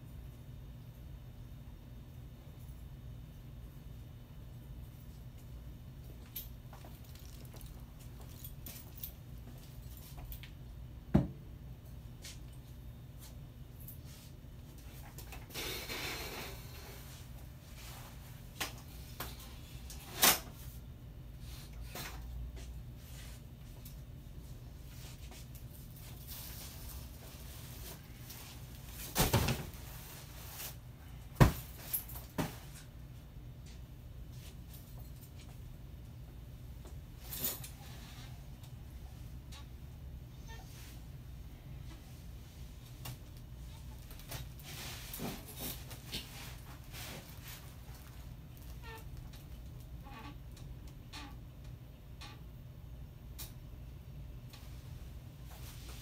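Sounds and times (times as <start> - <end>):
low room hum: 0.0 - 56.0
rustling and bumping bundles: 43.9 - 49.4.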